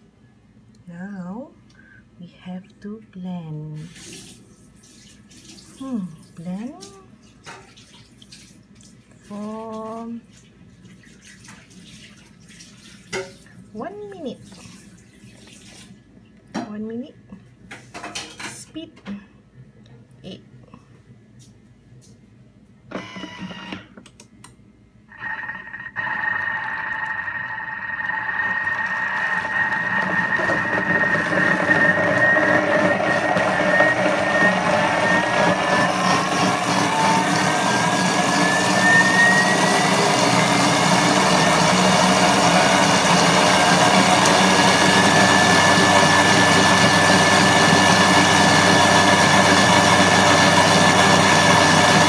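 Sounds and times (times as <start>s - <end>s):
blender motor whining: 25.1s - 52.0s.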